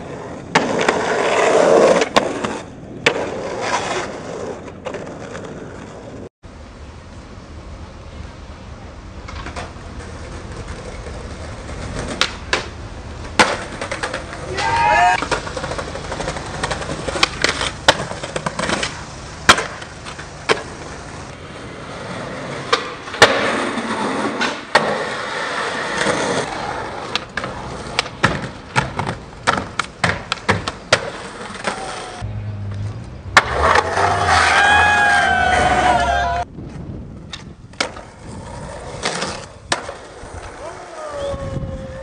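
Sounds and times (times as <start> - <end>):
skateboard wheels rolling on concrete: 0.0 - 42.0
skateboard clacks: 9.1 - 21.4, 22.3 - 36.1, 36.7 - 41.0
person calling out: 14.4 - 15.2, 40.6 - 42.0.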